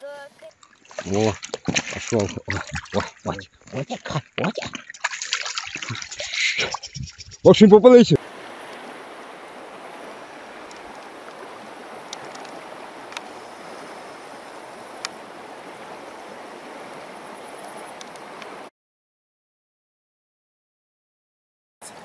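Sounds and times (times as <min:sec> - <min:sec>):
river rushing over stones: 0:08.2 - 0:18.7
faint clicks: 0:10.6 - 0:11.4, 0:12.1 - 0:13.3, 0:15.0 - 0:15.2, 0:17.7 - 0:18.6.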